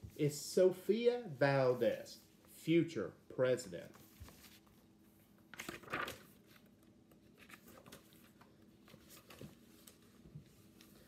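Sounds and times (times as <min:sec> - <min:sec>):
book pages rustling: 0:03.8 - 0:11.0
faint handling sounds: 0:03.8 - 0:11.0.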